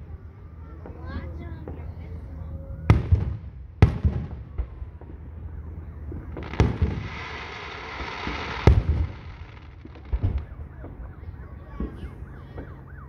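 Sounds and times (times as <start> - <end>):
firework shells booming: 2.9 - 12.8.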